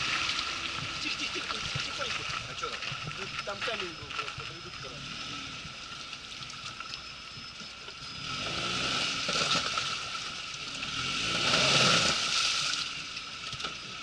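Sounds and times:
water splashing: 0.0 - 4.7, 9.1 - 13.6
tyres churning: 0.0 - 6.2
suv engine revving: 0.0 - 14.0.

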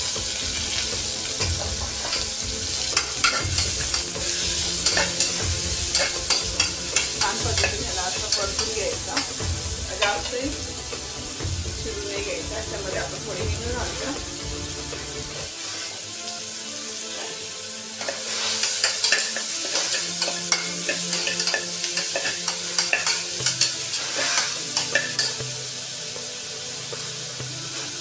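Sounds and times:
onions sizzling in hot oil: 0.0 - 28.0
metal spatula scraping a pot: 2.0 - 9.4, 18.0 - 25.4.

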